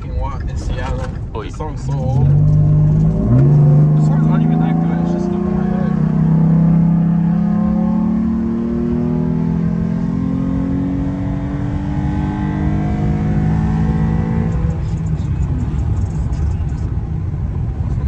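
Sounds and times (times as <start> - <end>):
pickup engine accelerating: 0.0 - 18.0
road rumble: 0.0 - 18.0.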